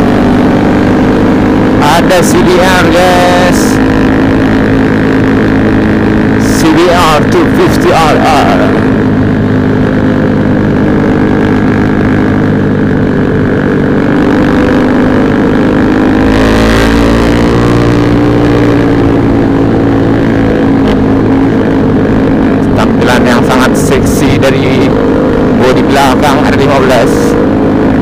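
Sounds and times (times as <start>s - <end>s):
motorcycle engine running: 0.0s - 28.0s.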